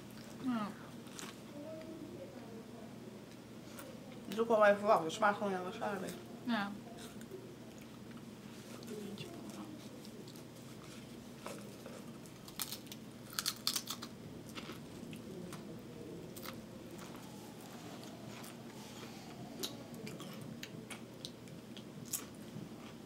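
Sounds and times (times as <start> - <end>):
crisps being crunched: 12.3 - 15.2.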